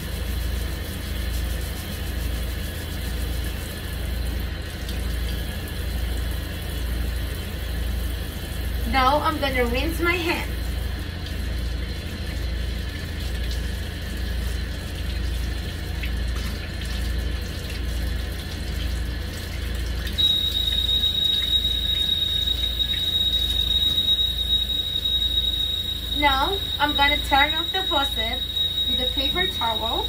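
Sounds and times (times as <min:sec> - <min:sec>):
water running into metal sink: 0:00.0 - 0:30.0
high-pitched whistle: 0:20.2 - 0:30.0.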